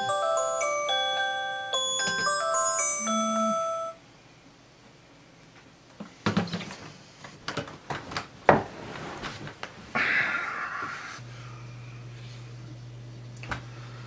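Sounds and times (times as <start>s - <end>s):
bedding rustling: 7.6s - 10.0s.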